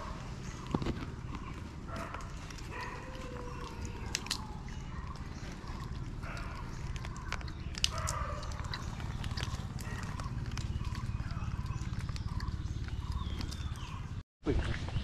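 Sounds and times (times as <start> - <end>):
monkeys crunching biscuits: 0.0 - 14.2
steady low hum: 0.0 - 14.2.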